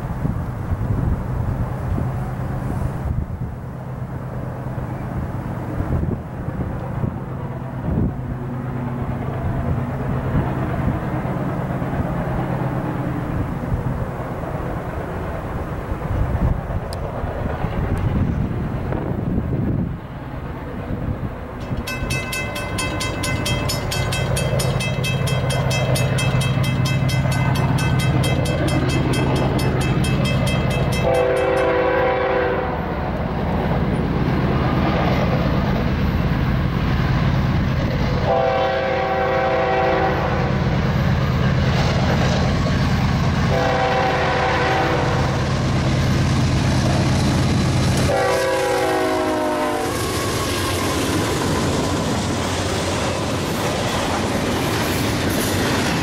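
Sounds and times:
diesel locomotive engines rumbling: 0.0s - 56.0s
train air horn blasts: 21.7s - 32.9s, 38.2s - 40.5s, 43.5s - 45.5s, 48.0s - 50.3s.

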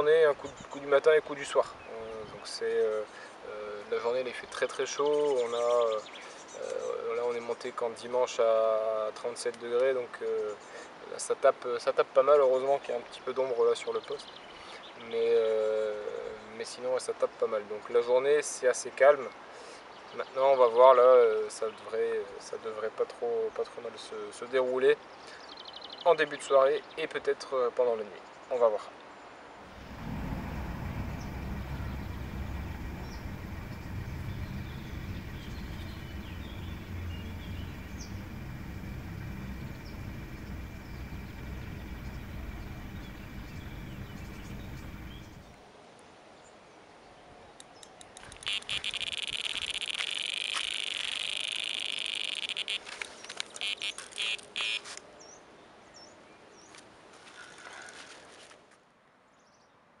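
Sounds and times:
fast-pulsing wildlife chirr: 29.7s - 45.6s, 48.4s - 52.8s
steady low rumble: 29.7s - 45.6s.

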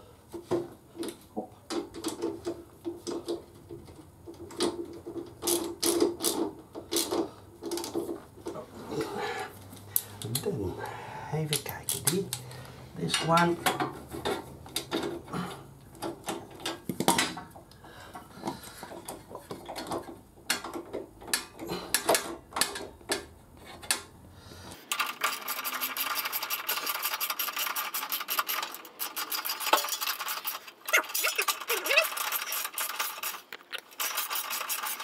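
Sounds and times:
metal tools clinking: 24.9s - 35.0s.

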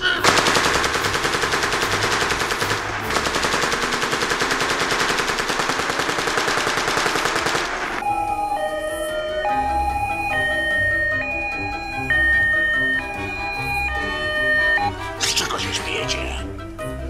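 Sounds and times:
rapid automatic gunfire: 0.2s - 8.0s
held organ-like chords: 8.0s - 15.3s.

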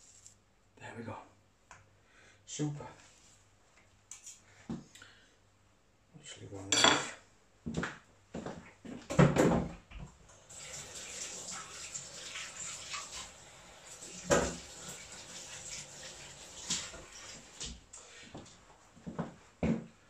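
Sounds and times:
kitchen tap running: 10.3s - 17.9s.

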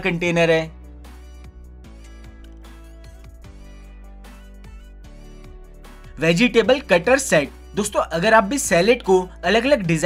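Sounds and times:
background music with held notes: 0.0s - 10.0s.

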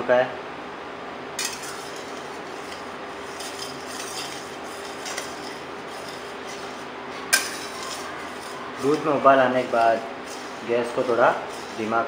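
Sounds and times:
spatula scraping metal pan: 1.4s - 12.0s
metal clink on pan: 7.3s - 9.0s.

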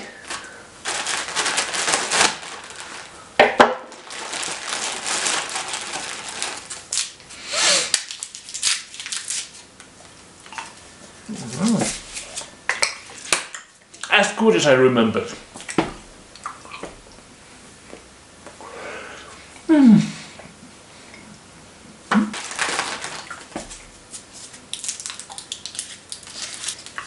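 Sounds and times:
candy wrappers crinkling: 0.0s - 9.8s, 22.3s - 27.0s.

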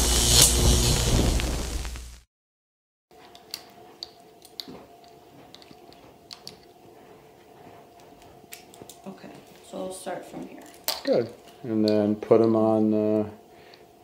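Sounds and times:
metallic clicks of leash hardware: 3.2s - 6.8s
faint steady hum: 3.2s - 14.0s.

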